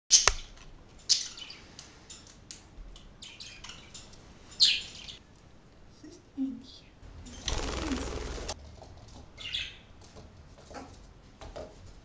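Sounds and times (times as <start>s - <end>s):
budgerigars chirping: 4.6s - 5.2s, 9.4s - 9.8s.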